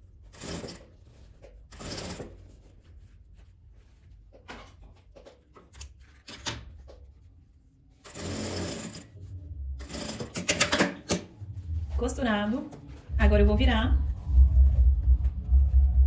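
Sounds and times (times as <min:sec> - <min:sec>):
fabric rustling: 0:00.0 - 0:06.2, 0:11.3 - 0:15.9
sewing machine stitching: 0:00.3 - 0:01.0, 0:01.7 - 0:02.4, 0:08.0 - 0:09.1, 0:09.8 - 0:11.3.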